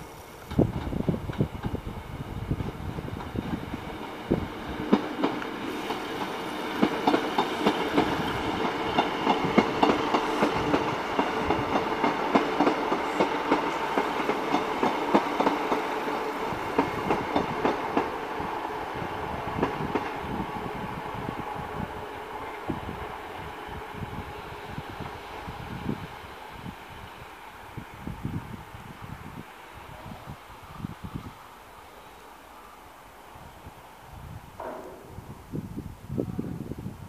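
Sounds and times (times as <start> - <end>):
train wheels clicking over rail joints: 0.4 - 18.5, 19.3 - 20.8, 34.5 - 35.9.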